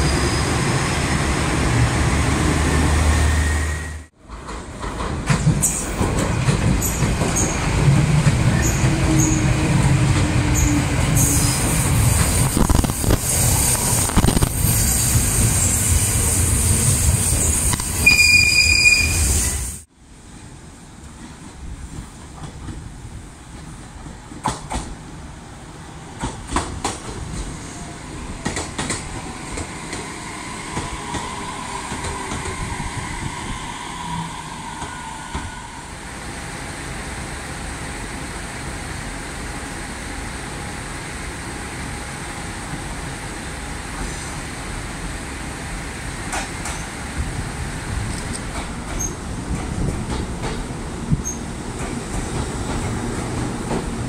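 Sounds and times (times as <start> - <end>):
train running noise: 0.0 - 54.0
train wheels clicking over rail joints: 4.2 - 18.0, 21.2 - 25.0, 26.2 - 27.7, 28.4 - 30.1, 46.2 - 54.0
faint train whine: 27.5 - 49.2.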